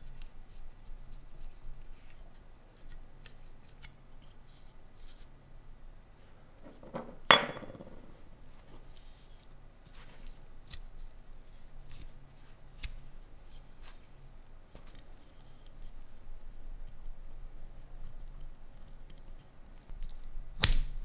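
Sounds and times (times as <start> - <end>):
sharp metallic clink: 7.3 - 8.1.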